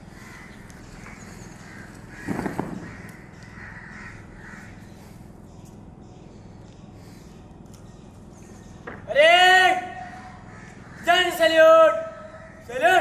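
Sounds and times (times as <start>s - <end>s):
crows cawing: 0.0s - 5.2s, 9.6s - 13.0s.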